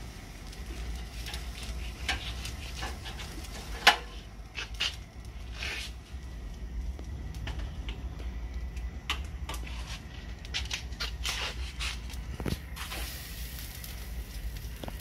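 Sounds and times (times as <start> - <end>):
low steady rumble: 0.0 - 15.0
metal grill rack rattling: 0.8 - 5.0.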